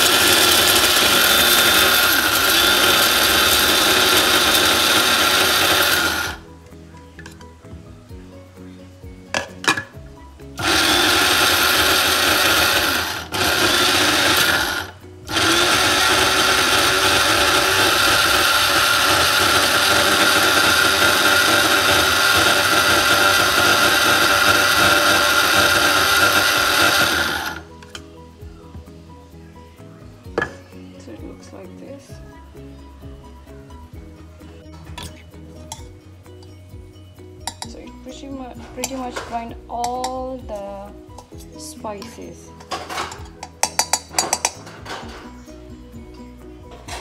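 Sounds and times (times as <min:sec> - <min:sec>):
spice grinder motor running: 0:00.0 - 0:06.4, 0:10.6 - 0:27.6.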